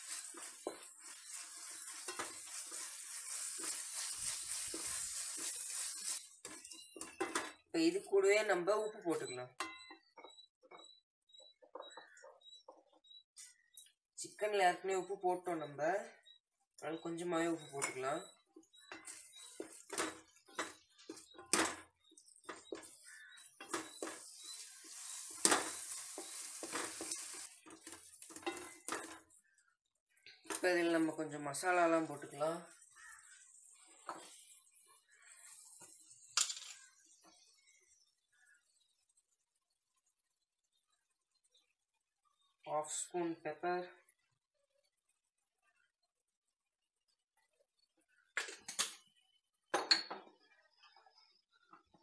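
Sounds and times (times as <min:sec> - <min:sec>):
spatula scraping a pot: 0:00.0 - 0:07.6, 0:17.6 - 0:29.4
food sizzling in hot oil: 0:00.0 - 0:08.2, 0:17.4 - 0:29.6, 0:30.5 - 0:41.6.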